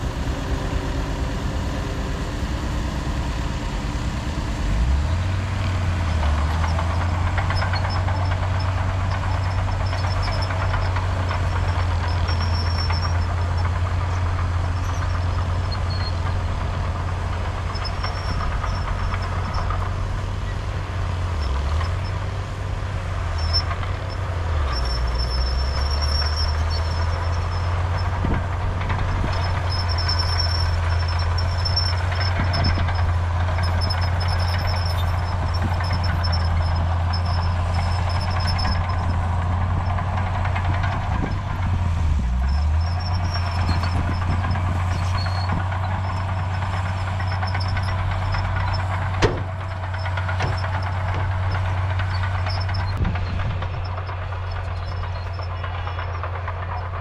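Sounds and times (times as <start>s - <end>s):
heavy diesel engine under load: 0.0s - 57.0s.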